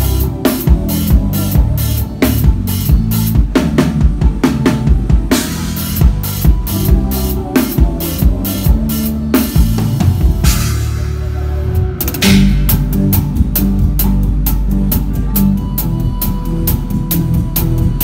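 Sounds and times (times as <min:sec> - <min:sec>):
bass line: 0:00.0 - 0:18.0
drum kit groove: 0:00.0 - 0:18.0
cymbal crash: 0:10.5 - 0:13.3.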